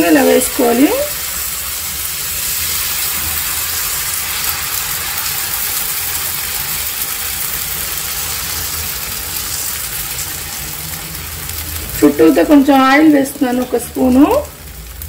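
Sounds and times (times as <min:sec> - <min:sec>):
batter sizzling on a hot griddle: 0:00.0 - 0:15.0.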